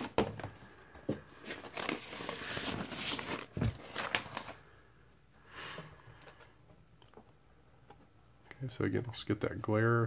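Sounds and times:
paper and cardboard rustling: 0.0 - 4.6.

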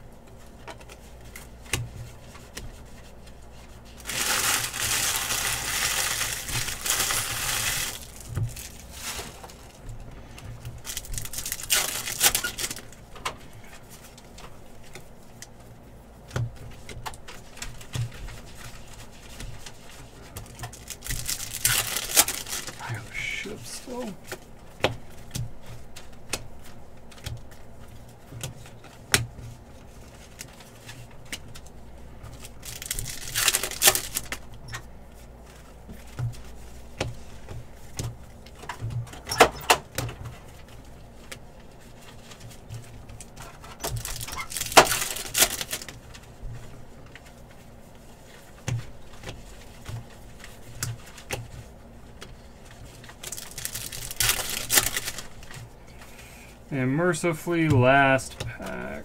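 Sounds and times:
foil wrappers ripping: 3.9 - 9.8, 10.8 - 13.0, 17.7 - 24.0, 32.3 - 34.5, 43.2 - 46.2, 52.9 - 55.6.

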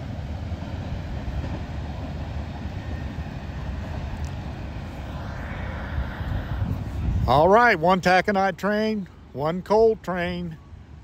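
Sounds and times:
train wheels rolling on rail: 0.0 - 5.1.

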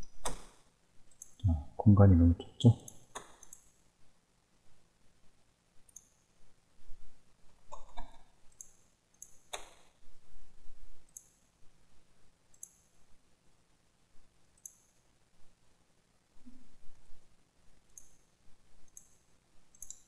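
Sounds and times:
computer mouse clicks: 0.0 - 1.4, 2.8 - 3.7, 5.9 - 6.2, 7.7 - 9.9, 11.0 - 11.4, 12.5 - 12.9, 14.6 - 15.0, 17.9 - 20.0.

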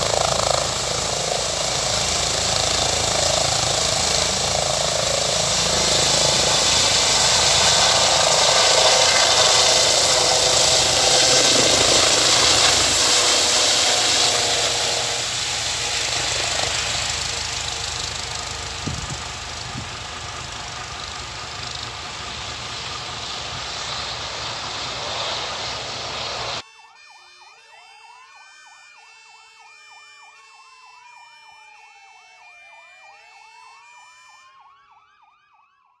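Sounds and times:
helicopter rotor and turbine noise: 0.0 - 26.6
electronic sirens wailing and yelping: 0.0 - 35.6.

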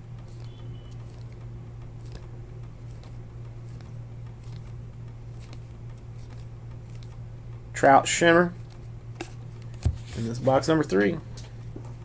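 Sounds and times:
steady low hum: 0.0 - 12.0
cards clicking and rustling: 0.2 - 7.2, 8.6 - 11.0.

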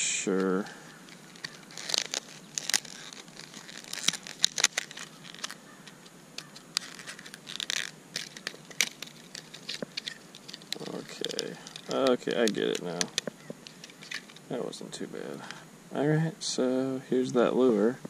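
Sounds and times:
plastic blister pack crinkling: 0.3 - 14.6.

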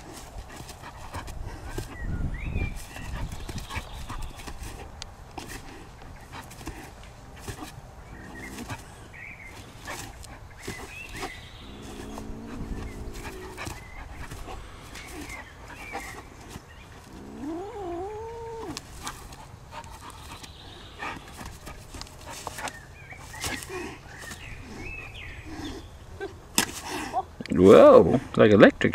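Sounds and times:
kitten growling: 11.6 - 15.3, 17.1 - 19.1.

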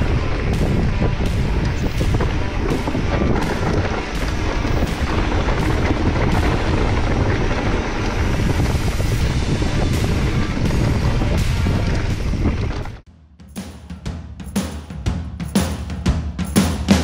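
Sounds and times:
bike knocking on bumps: 0.0 - 13.0
bike rattling: 0.0 - 13.0
bike tyres rolling on dirt: 0.0 - 13.0
wind rumble on microphone: 0.0 - 13.0.

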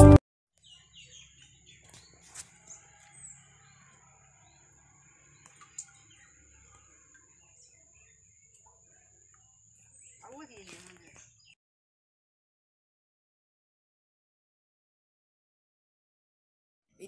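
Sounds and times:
small birds chirping: 0.6 - 11.6.

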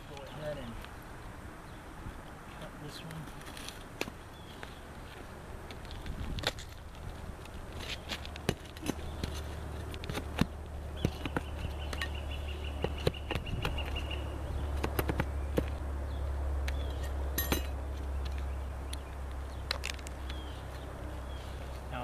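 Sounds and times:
tool prying and scraping shingles: 7.7 - 12.2.

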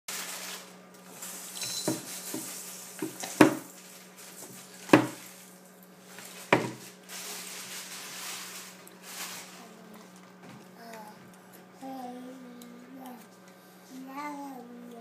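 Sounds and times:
plastic cup knocking on wooden table: 4.9 - 5.2, 6.5 - 6.8.

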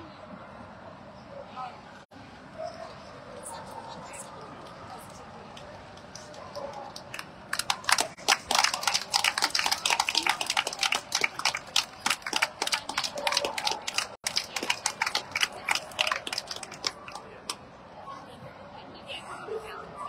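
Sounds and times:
people clapping: 4.6 - 17.6.

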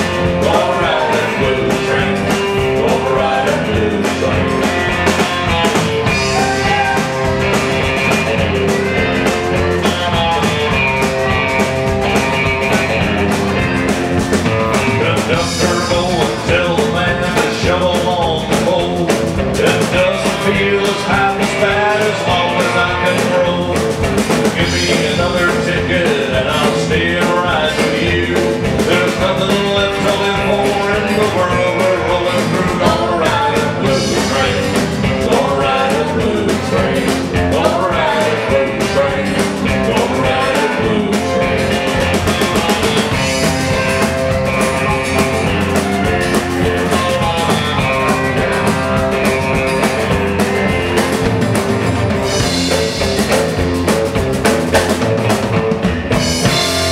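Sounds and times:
country band playing: 0.0 - 56.9
woman singing: 6.2 - 7.2.

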